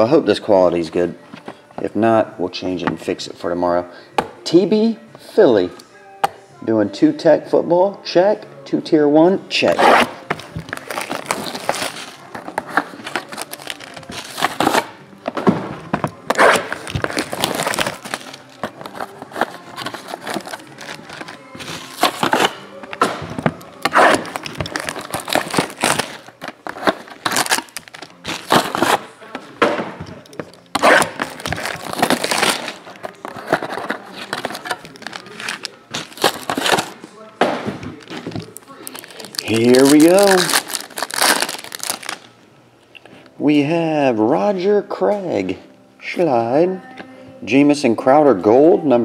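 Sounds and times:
plastic shrink wrap tearing: 9.8 - 15.0, 16.1 - 29.1, 30.3 - 37.0, 38.0 - 42.3
foil packs rustling: 10.0 - 15.0, 15.9 - 29.2, 30.2 - 37.0, 37.9 - 42.3.

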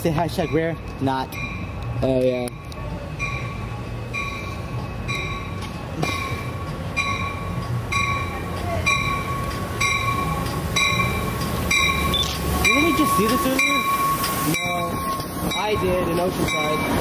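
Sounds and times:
train bell ringing: 0.0 - 17.0
train rumbling: 0.0 - 17.0.

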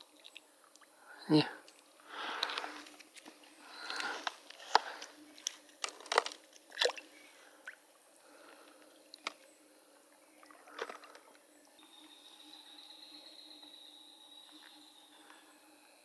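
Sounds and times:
river water splashing: 3.6 - 7.8
high insect trill: 11.8 - 16.0.

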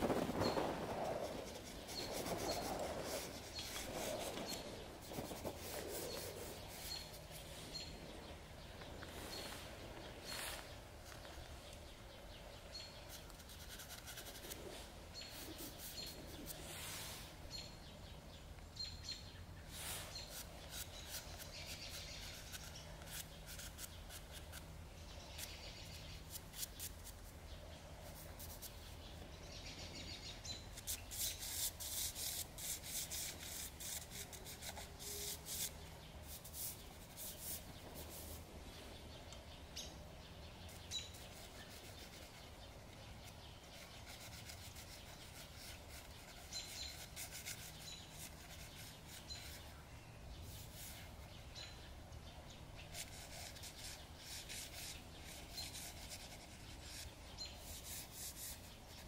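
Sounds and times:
pastel scratching on paper: 1.4 - 7.5, 13.1 - 14.6, 30.7 - 38.4, 40.7 - 49.7, 52.9 - 59.0
faint high bird chirps: 17.5 - 59.0.

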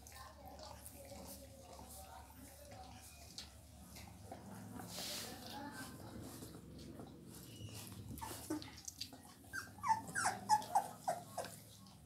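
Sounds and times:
puppy whimpering: 7.5 - 11.8.

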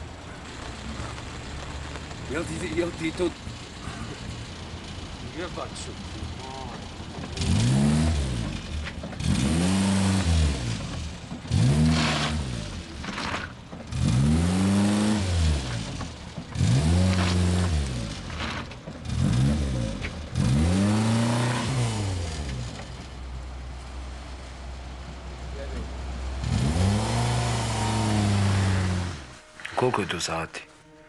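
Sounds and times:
small car engine revving: 2.0 - 23.1, 26.3 - 29.4.

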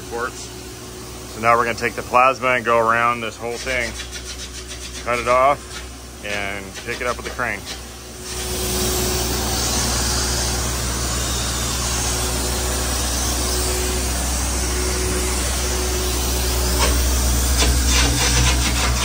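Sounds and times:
plasma cutter hissing: 7.6 - 19.0
low hum: 8.0 - 19.0.

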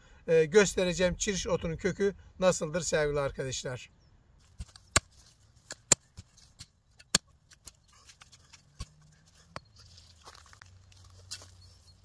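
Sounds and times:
clicks and snaps in dry grass: 4.4 - 12.0.

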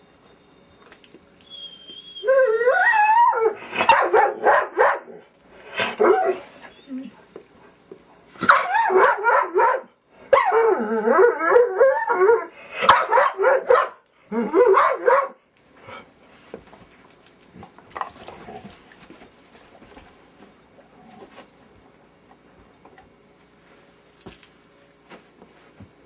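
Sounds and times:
dog barking and whining: 1.5 - 7.3, 8.4 - 15.4.

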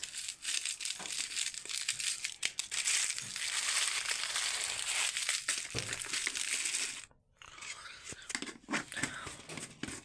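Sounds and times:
foil sachets crinkling: 0.0 - 7.1.

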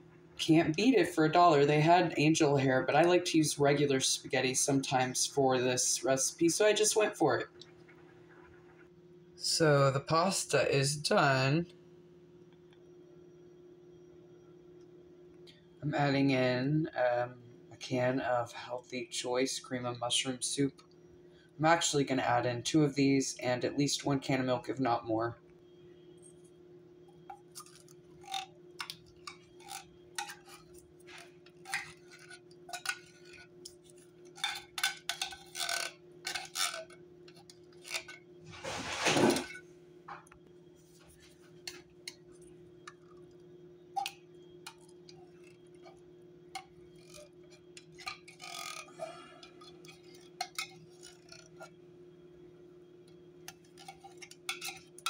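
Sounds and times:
steady low hum: 0.0 - 55.0
loud scraping noise: 38.5 - 39.5
spoon clinking on tin cans: 47.8 - 51.6, 53.5 - 55.0.

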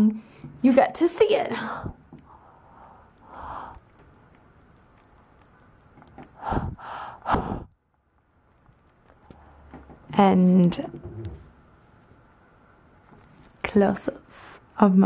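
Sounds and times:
person breathing through mouth: 1.6 - 4.0, 6.3 - 7.7.

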